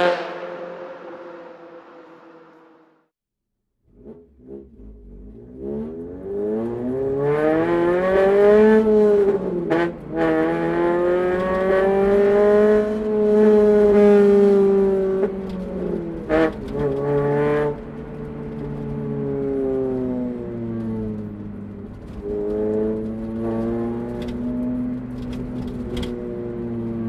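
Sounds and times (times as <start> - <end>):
car engine accelerating hard: 3.9 - 27.0.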